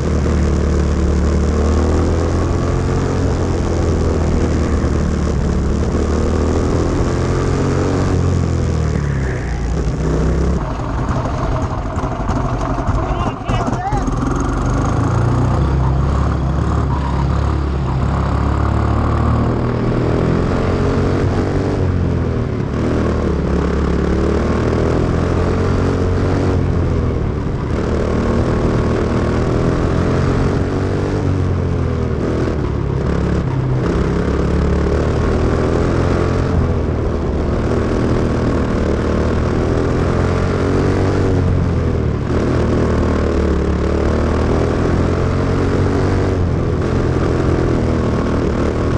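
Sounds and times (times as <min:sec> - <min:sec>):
small racing engine revving: 0:00.0 - 0:26.9.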